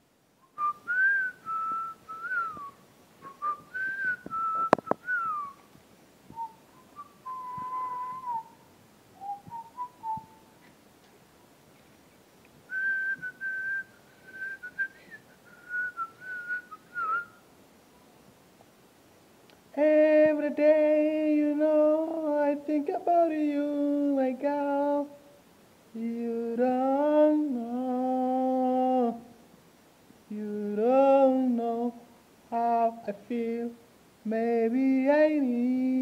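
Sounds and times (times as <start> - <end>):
man whistling a tune: 0.4 - 5.6, 6.3 - 8.6, 9.2 - 10.5, 12.7 - 17.4.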